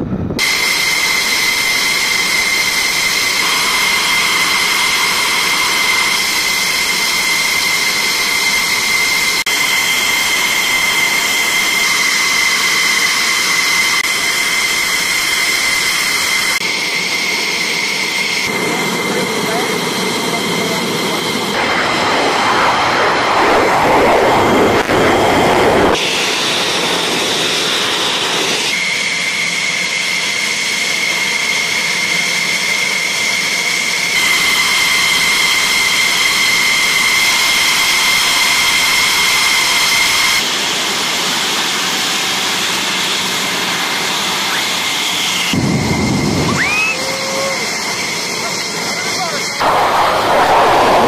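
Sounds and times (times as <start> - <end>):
deep jet rumble: 0.0 - 28.8, 43.6 - 51.0
jet engine turbine whine: 0.0 - 51.0.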